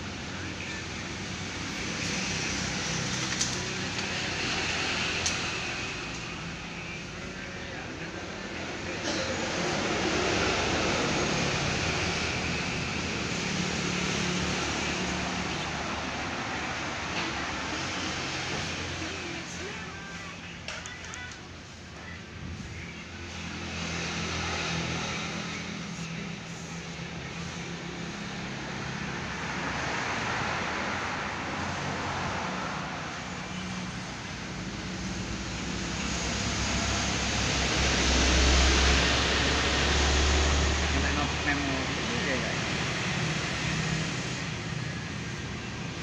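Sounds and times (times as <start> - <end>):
truck passing: 0.0 - 21.0, 21.6 - 46.0.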